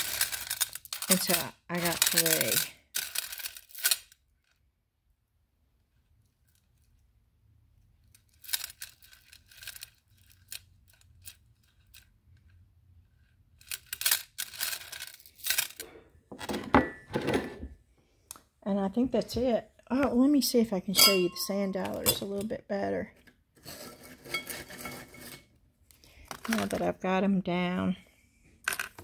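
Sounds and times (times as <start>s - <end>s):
seashells clicking and rustling: 0.0s - 4.5s, 8.0s - 12.6s, 13.6s - 15.8s.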